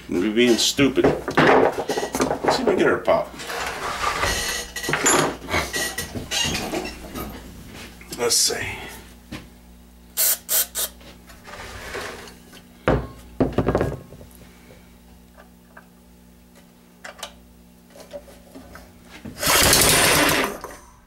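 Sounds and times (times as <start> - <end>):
small engine cranking and popping: 19.4 - 20.7.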